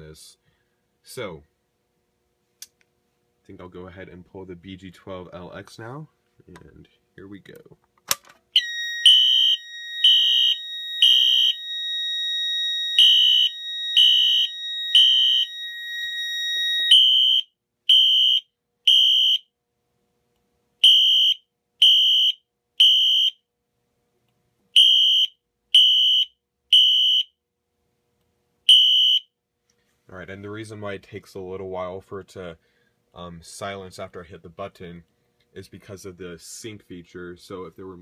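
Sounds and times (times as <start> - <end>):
alarm horn blasts: 8.6 - 19.4, 28.7 - 29.2.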